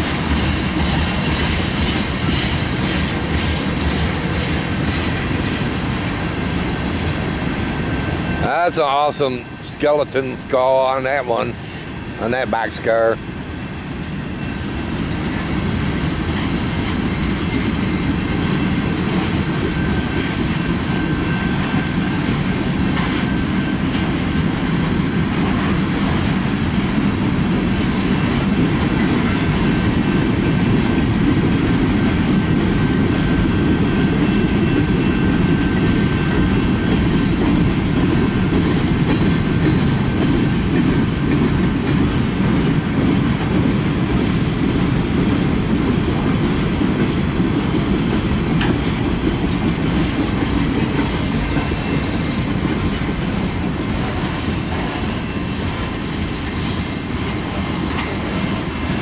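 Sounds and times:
clickety-clack over rail joints: 0.0s - 59.0s
steel wheels rumbling on rail: 0.0s - 59.0s.

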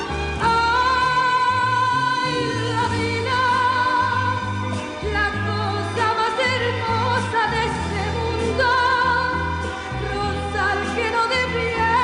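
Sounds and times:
melody with strong vibrato: 0.0s - 6.0s
held bass notes: 0.0s - 12.0s.

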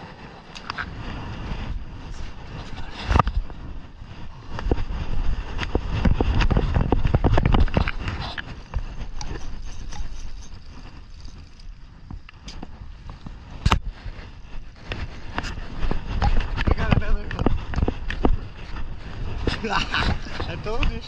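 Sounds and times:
clothing rubbing on microphone: 0.0s - 21.0s.

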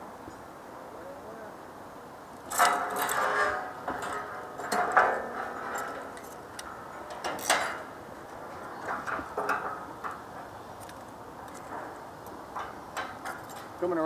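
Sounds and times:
steel knocking and rattling: 2.5s - 10.5s, 11.4s - 14.0s.

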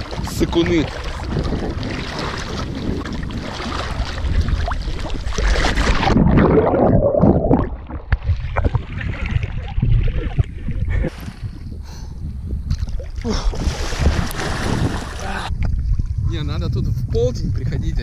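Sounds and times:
muffled underwater bubbling: 0.0s - 11.7s
water splashing and sloshing: 0.0s - 11.7s, 12.7s - 16.2s.

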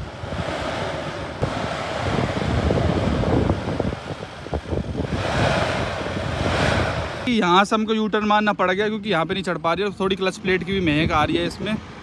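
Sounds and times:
diesel engine running hard: 0.0s - 7.5s
wind noise on microphone: 0.0s - 12.0s.

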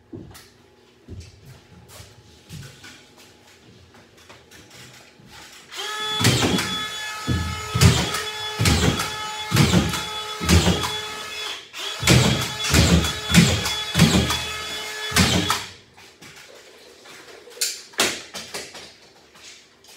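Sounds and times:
screws driven into drywall: 5.7s - 15.7s.

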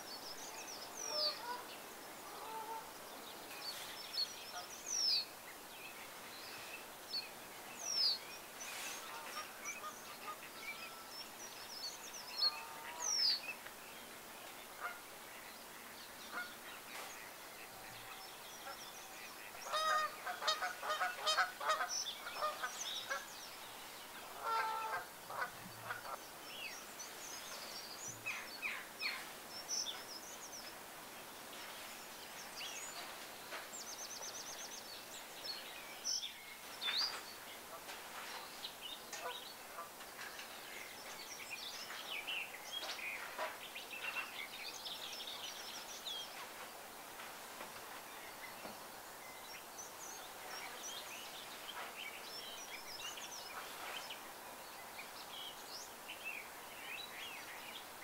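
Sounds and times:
deep repeated bird calls: 16.2s - 23.3s.

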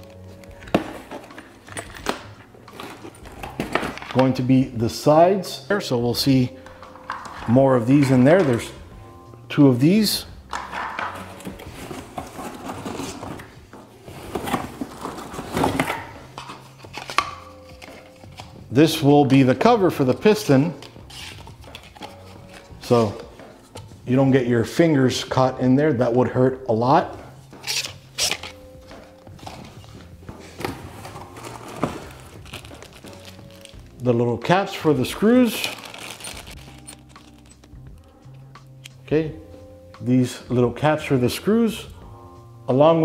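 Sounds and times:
packaging rustling and scraping: 0.0s - 4.5s, 10.5s - 18.6s, 20.8s - 23.9s, 27.5s - 33.9s, 34.8s - 38.1s
rummaging in cardboard box: 0.4s - 4.2s, 11.1s - 18.6s, 20.8s - 23.8s, 27.6s - 33.9s, 35.2s - 37.7s.

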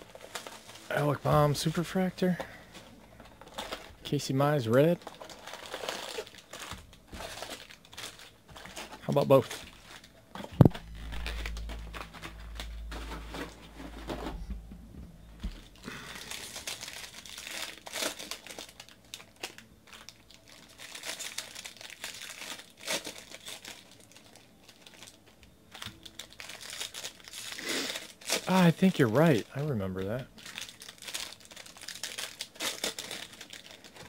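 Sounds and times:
foil wrappers crinkling and tearing: 0.0s - 14.2s, 15.4s - 34.0s.

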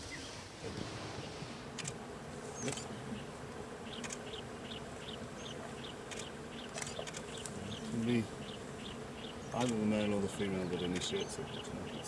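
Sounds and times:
insects buzzing: 0.0s - 12.0s
sharp clicks: 1.8s - 2.0s, 4.0s - 4.3s, 6.1s - 7.5s, 9.6s - 9.8s, 10.9s - 11.2s.

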